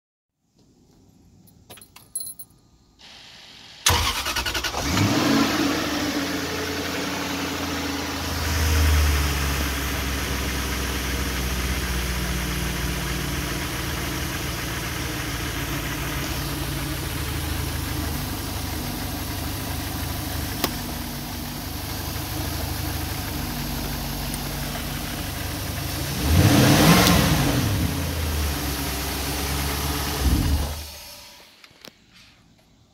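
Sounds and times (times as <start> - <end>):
boat engine starting and idling: 3.8 - 7.5
engine revving: 3.9 - 18.2, 24.5 - 31.4.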